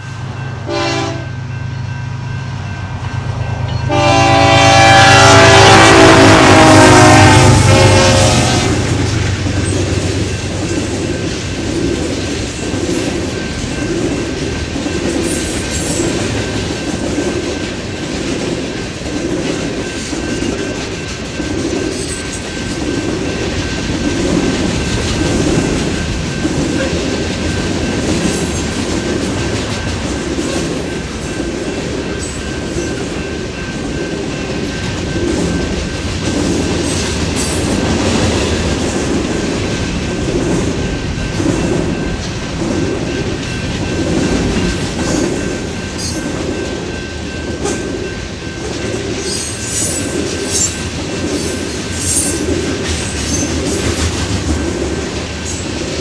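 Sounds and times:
locomotive rumble: 0.0 - 49.1
train horn: 0.6 - 1.5, 3.6 - 9.4
train wheels clattering on rail joints: 8.8 - 56.0.

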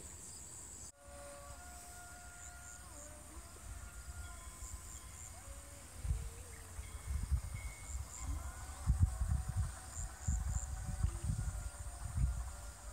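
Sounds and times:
insects chirring: 0.0 - 12.9
wind buffeting microphone: 3.7 - 12.9.

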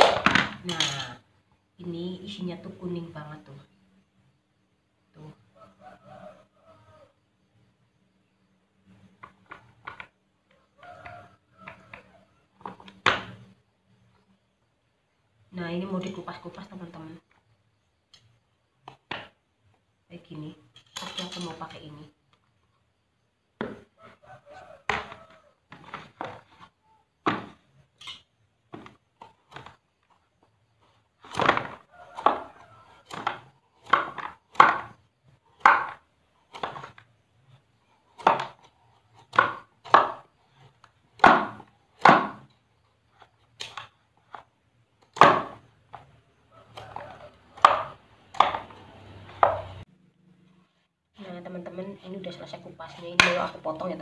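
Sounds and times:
knife cutting pumpkin rind: 46.6 - 49.8.

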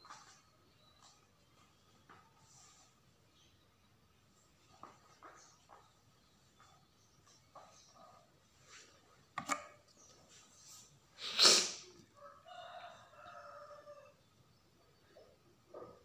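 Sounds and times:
rooster crowing: 12.1 - 14.2.

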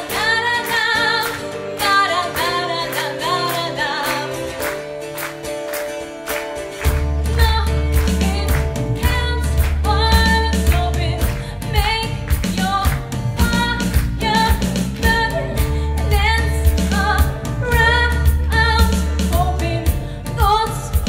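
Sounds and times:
woman singing: 0.0 - 4.6, 7.2 - 21.0
backing track bass and drums: 6.9 - 21.0.

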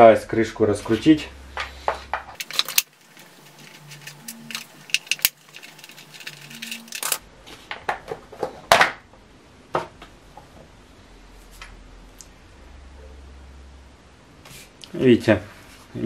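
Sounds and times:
plastic and metal parts clicking: 2.4 - 7.2.

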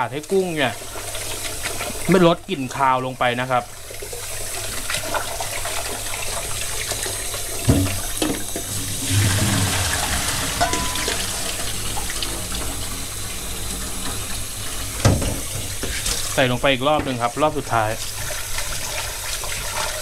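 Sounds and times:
water poured into colander: 8.6 - 12.6.

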